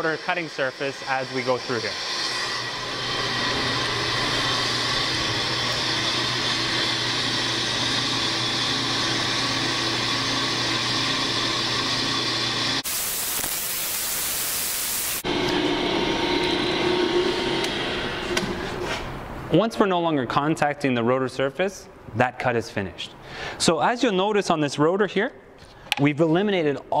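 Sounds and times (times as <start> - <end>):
brake lathe cutting hum and whine: 0.0 - 12.8, 15.2 - 18.8
even hiss: 12.8 - 15.2.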